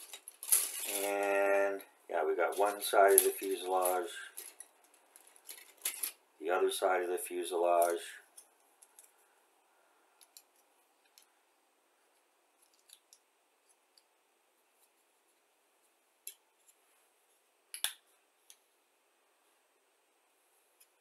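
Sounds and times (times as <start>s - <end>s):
plastic parts clicking together: 10.2s - 11.3s, 12.6s - 14.1s.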